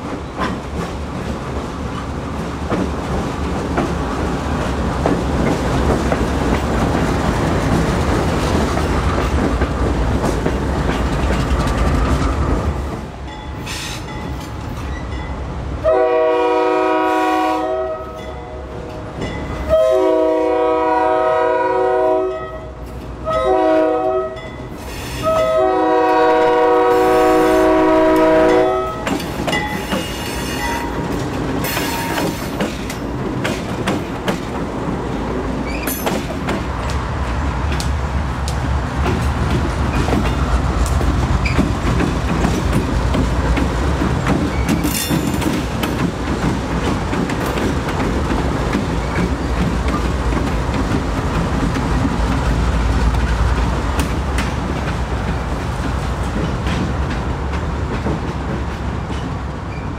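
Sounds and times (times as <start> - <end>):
diesel locomotive rumbling: 0.0 - 59.9
locomotive air horn blasts: 15.8 - 18.2, 19.7 - 24.4, 25.1 - 29.2.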